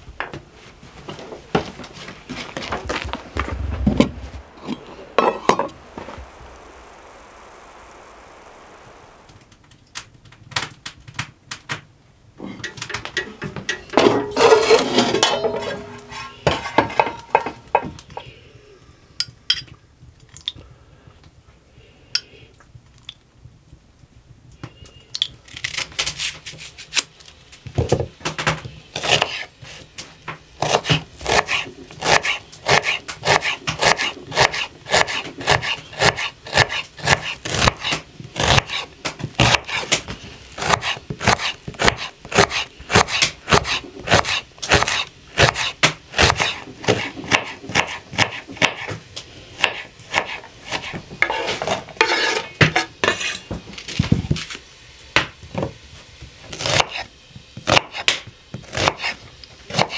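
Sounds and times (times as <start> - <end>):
dishes and utensils clinking: 12.4 - 18.0
knife chopping on cutting board: 30.6 - 38.8, 40.6 - 49.0, 49.6 - 53.4.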